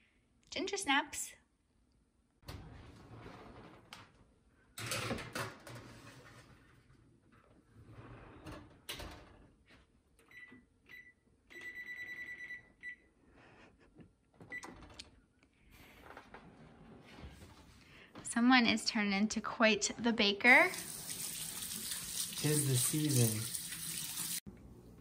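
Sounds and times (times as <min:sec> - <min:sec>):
oven control panel beeps: 0:10.3 - 0:13.0.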